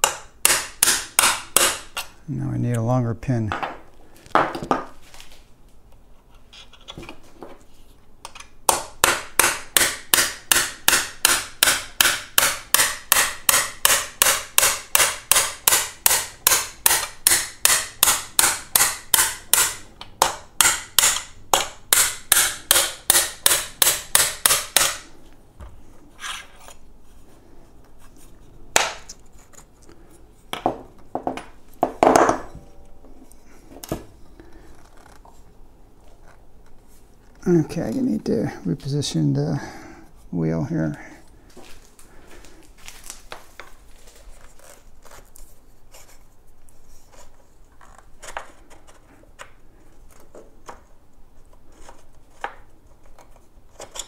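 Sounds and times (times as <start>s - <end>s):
hammer striking metal punch: 0.0s - 1.9s, 8.7s - 25.0s.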